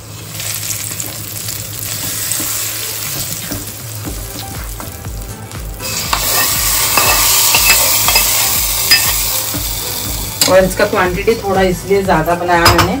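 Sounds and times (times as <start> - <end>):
hot oil sizzling: 0.0 - 12.8.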